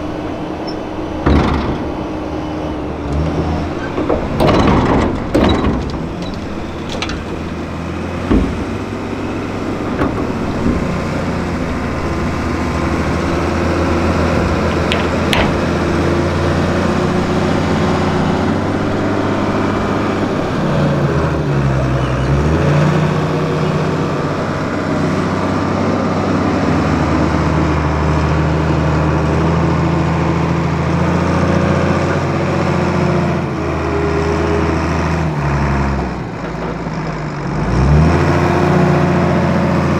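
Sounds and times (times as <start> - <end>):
tractor engine under load: 0.0 - 39.9
sharp knocks: 1.2 - 2.3, 3.1 - 17.3.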